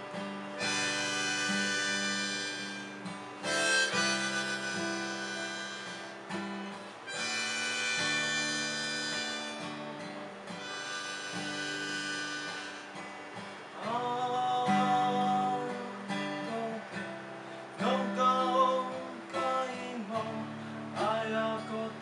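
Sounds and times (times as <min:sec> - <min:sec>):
harmonica chords: 0:00.0 - 0:21.6
strummed acoustic guitar: 0:00.0 - 0:22.0.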